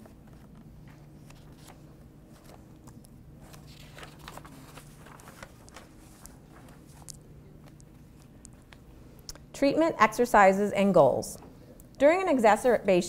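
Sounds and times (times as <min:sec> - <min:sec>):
paper pages rustling: 0:00.0 - 0:08.9
low steady hum: 0:00.0 - 0:13.0.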